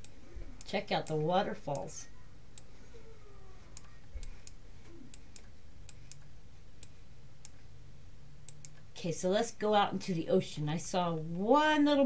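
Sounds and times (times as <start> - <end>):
computer mouse clicking: 8.4 - 8.8.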